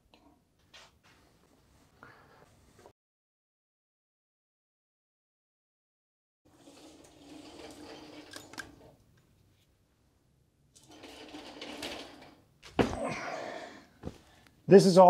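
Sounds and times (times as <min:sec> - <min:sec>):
stool casters rolling on concrete: 0:06.5 - 0:09.0, 0:10.8 - 0:12.5.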